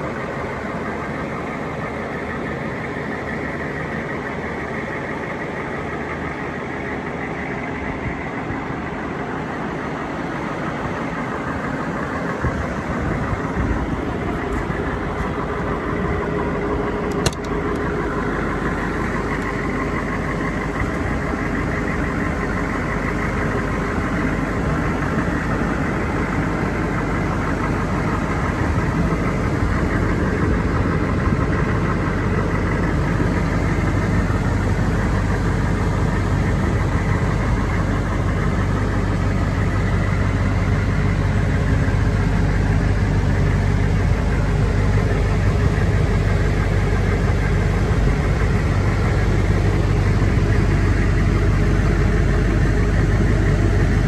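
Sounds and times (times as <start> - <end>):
diesel engine idling: 0.0 - 54.0
car door click: 17.1 - 17.8.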